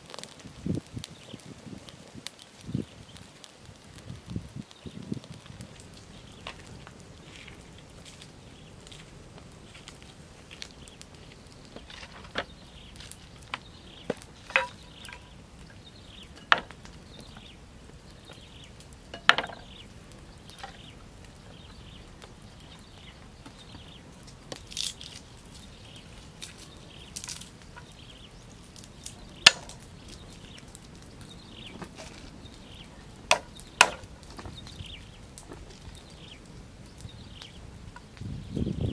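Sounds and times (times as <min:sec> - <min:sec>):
bottles and bowl clattering on wood: 0:14.5 - 0:15.3, 0:19.1 - 0:19.7.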